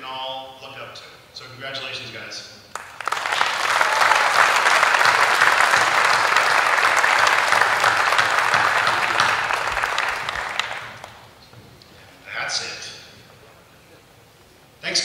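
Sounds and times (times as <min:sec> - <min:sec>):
audience applauding: 0:02.8 - 0:11.4.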